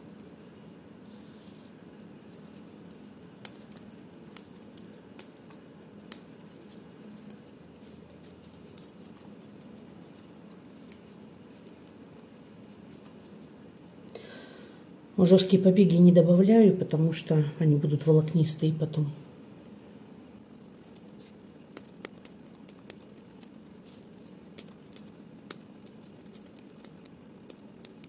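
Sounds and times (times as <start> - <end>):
basil leaves snapping: 2.8 - 13.4, 20.8 - 28.0.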